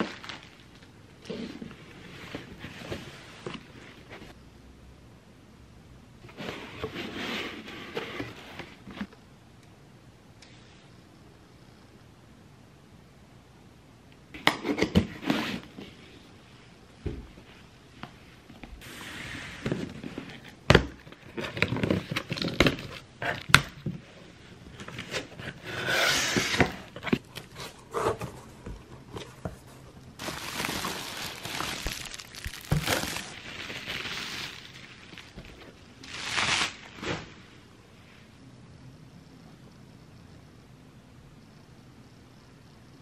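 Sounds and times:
bubble wrap crinkling: 0:00.0 - 0:00.9, 0:30.2 - 0:37.4.

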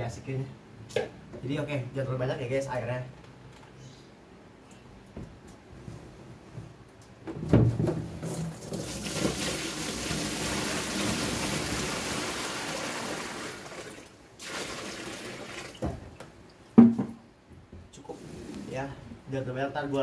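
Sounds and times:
water pouring into plastic box: 0:08.3 - 0:15.9.

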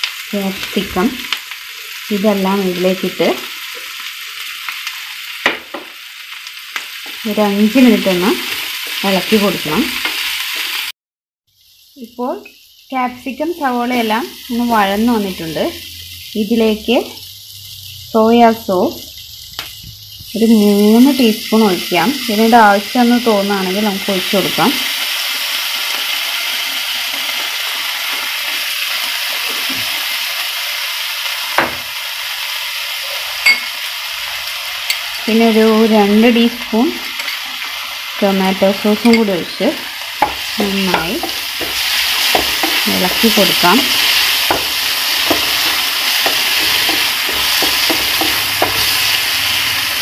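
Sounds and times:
vegetables sizzling in oil: 0:00.0 - 0:10.9, 0:11.5 - 0:50.0
spatula stirring in pan: 0:39.0 - 0:50.0.

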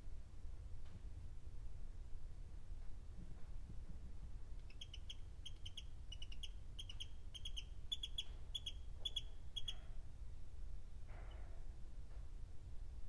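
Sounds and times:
low steady hum: 0:00.0 - 0:13.0
chicks peeping: 0:04.7 - 0:09.7.

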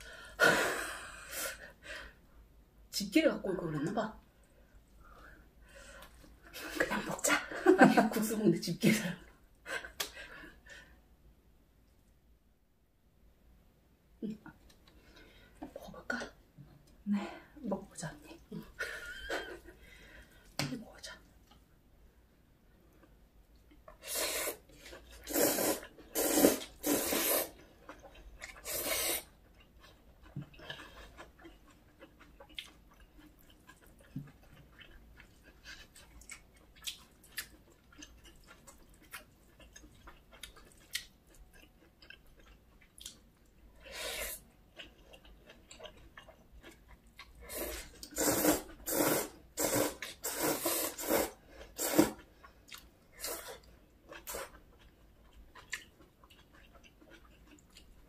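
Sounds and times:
noodles slurped: 0:24.0 - 0:27.6, 0:47.5 - 0:52.3
wet chewing: 0:24.7 - 0:43.6, 0:44.3 - 0:58.0.

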